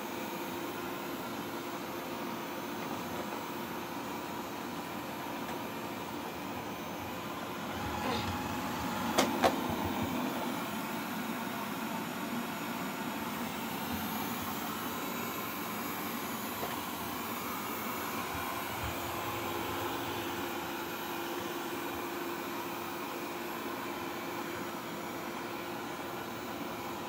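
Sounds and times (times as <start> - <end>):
robot vacuum whirring: 7.4 - 20.6.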